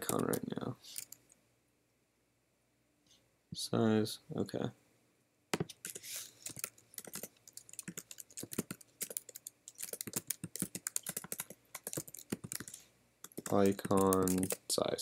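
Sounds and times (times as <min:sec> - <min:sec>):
typing on computer keyboard: 0:00.0 - 0:01.2, 0:05.6 - 0:14.6.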